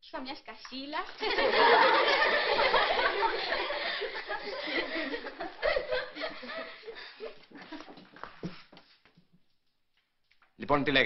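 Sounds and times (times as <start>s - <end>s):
girls laughing: 1.2s - 8.2s.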